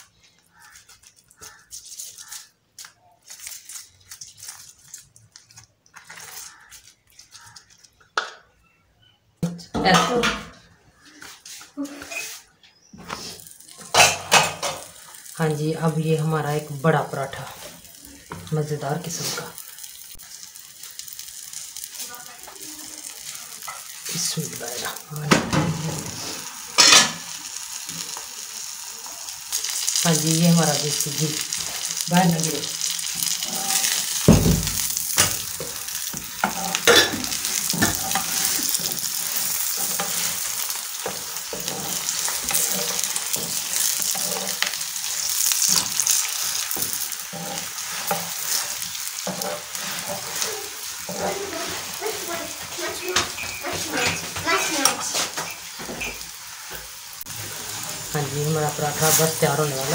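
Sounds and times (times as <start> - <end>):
flatbread sizzling in ghee: 0.0 - 8.2, 9.8 - 59.9
loud sizzle burst: 13.1 - 59.9
metal spoon scraping steel plate: 41.5 - 44.8, 47.3 - 50.4.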